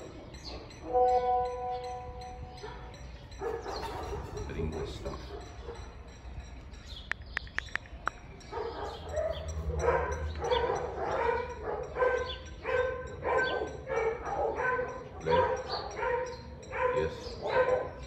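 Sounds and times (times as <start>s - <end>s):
dog barking: 2.5s - 6.0s, 8.5s - 18.0s.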